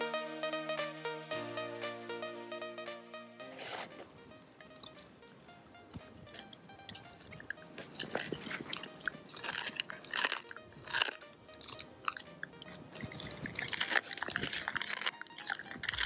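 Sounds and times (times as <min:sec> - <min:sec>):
background music: 0:00.0 - 0:16.0
dog crunching cartilage: 0:07.8 - 0:16.0.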